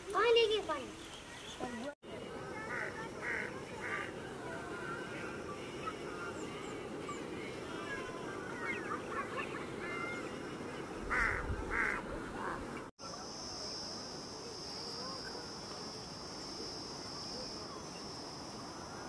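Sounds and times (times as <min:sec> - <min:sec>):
birds chirping: 0:00.4 - 0:12.9
loud bird calls: 0:11.0 - 0:12.0
high insect drone: 0:13.0 - 0:19.0.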